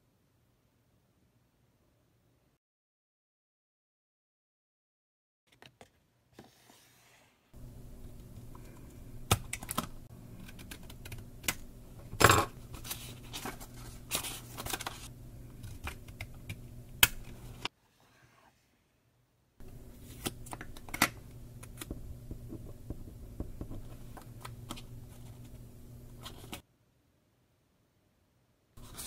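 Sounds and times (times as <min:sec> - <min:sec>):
scissors snipping paper: 0:09.3 - 0:11.6
paper handling: 0:12.6 - 0:17.7, 0:19.6 - 0:26.6, 0:28.8 - 0:29.0.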